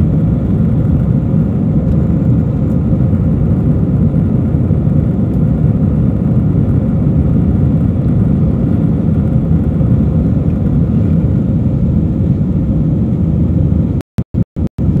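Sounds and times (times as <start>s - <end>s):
jet engines and rushing air: 0.0s - 14.0s, 14.6s - 15.0s.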